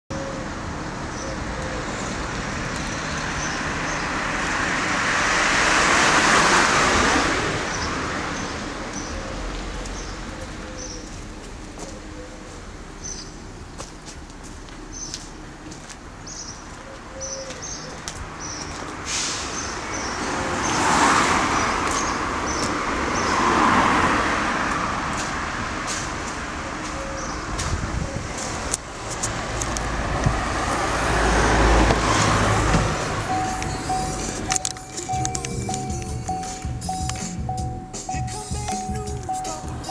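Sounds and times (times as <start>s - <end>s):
vehicle passing by: 1.4s - 11.9s, 17.6s - 37.6s
high bird chirps: 33.2s - 39.9s.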